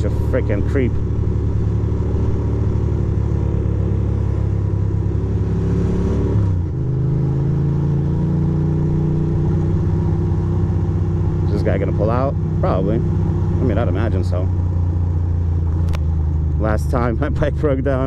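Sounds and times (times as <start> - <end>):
motorcycle engine accelerating: 0.0 - 18.0.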